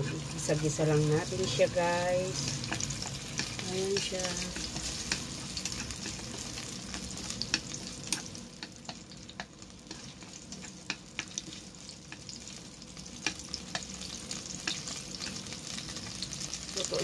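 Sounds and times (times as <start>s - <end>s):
food sizzling in hot oil: 0.0s - 17.0s
chopsticks clicking against pot: 2.6s - 11.5s, 13.2s - 14.0s, 14.6s - 15.4s.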